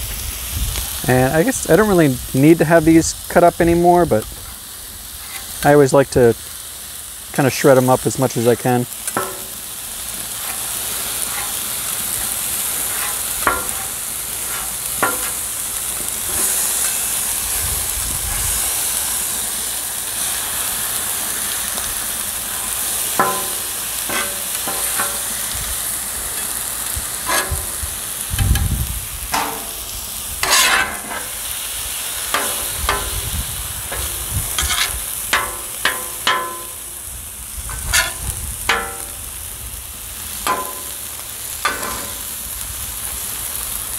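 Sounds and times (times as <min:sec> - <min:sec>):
steak sizzling on a griddle: 0:00.0 - 0:43.9
metal spatulas scraping and clacking: 0:09.1 - 0:09.6, 0:10.4 - 0:15.4, 0:23.2 - 0:25.4, 0:27.2 - 0:27.8, 0:29.3 - 0:29.8, 0:30.4 - 0:31.4, 0:32.3 - 0:33.2, 0:33.9 - 0:36.9, 0:37.7 - 0:39.2, 0:40.5 - 0:41.0, 0:41.6 - 0:42.3.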